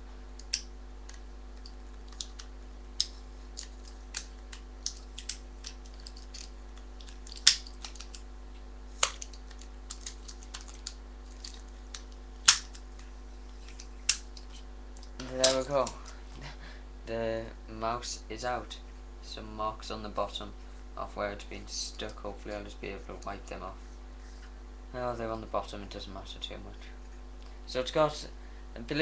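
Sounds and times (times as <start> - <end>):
plastic packaging clicks and crackles: 0.4 - 8.2, 9.0 - 16.0.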